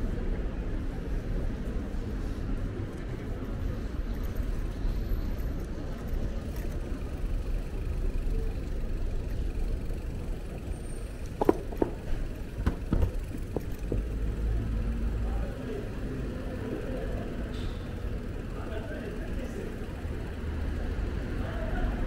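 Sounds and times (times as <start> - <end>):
road traffic rumbling: 0.0 - 22.0
short knocks: 11.4 - 14.1.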